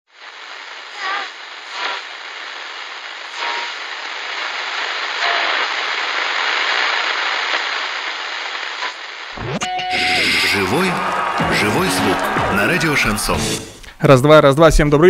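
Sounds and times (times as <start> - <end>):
static-like hiss: 0.1 - 11.4.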